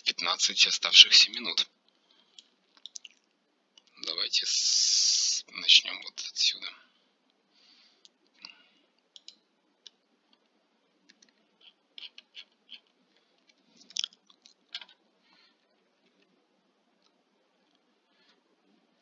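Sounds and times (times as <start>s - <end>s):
soft breaths: 1.9s - 2.7s, 6.7s - 9.1s, 15.1s - 16.3s, 17.8s - 19.0s
computer mouse and keys clicking: 8.0s - 15.0s.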